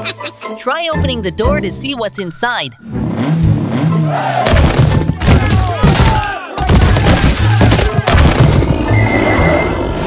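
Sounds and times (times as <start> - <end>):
music: 0.0 - 10.0
sharp crash bangs: 4.4 - 8.9.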